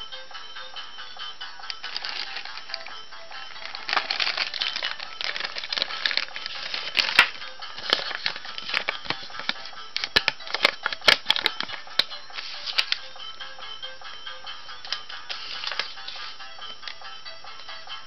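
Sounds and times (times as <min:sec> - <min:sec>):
background music: 0:00.0 - 0:18.0
plastic bag crinkling and tearing: 0:01.8 - 0:02.8, 0:03.5 - 0:11.6.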